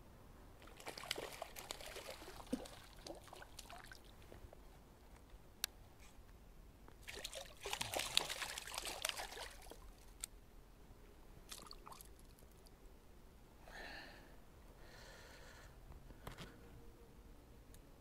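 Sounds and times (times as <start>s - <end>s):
water splashing and trickling: 0.6s - 4.2s, 7.0s - 10.2s, 11.5s - 12.7s.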